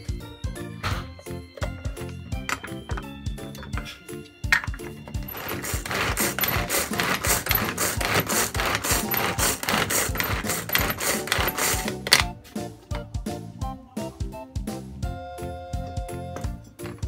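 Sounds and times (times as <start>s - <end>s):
pull-cord food chopper whirring: 4.6s - 12.3s.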